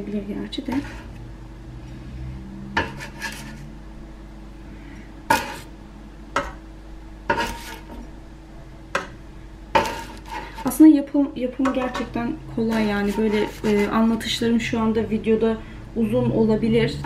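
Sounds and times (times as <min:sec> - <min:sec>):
faint steady hum: 0:00.0 - 0:17.0
light scraping: 0:00.6 - 0:01.2, 0:02.8 - 0:03.7, 0:07.3 - 0:08.0, 0:09.8 - 0:10.8, 0:12.6 - 0:14.2.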